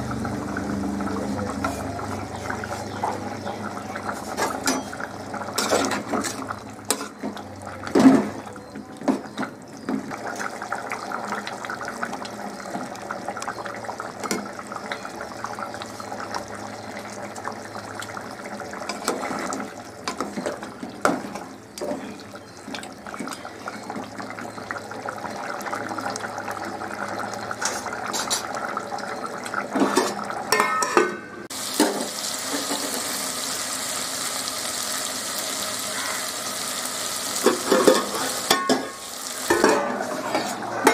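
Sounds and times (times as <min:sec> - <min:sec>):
curry bubbling in a pot: 0:00.0 - 0:30.9
metal ladle knocking pot: 0:29.9 - 0:31.9.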